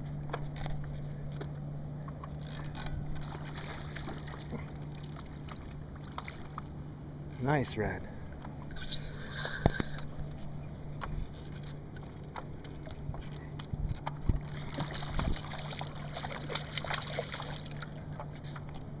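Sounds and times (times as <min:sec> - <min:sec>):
steady low hum: 0:00.0 - 0:19.0
light splashes and knocks: 0:00.2 - 0:06.8, 0:11.0 - 0:18.8
waves lapping against paddleboard: 0:02.2 - 0:06.8, 0:08.5 - 0:18.9.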